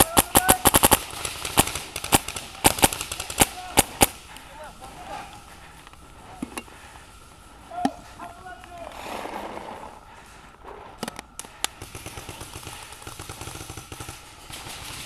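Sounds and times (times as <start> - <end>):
paintball markers firing pops: 0.0 - 4.2, 11.0 - 15.0.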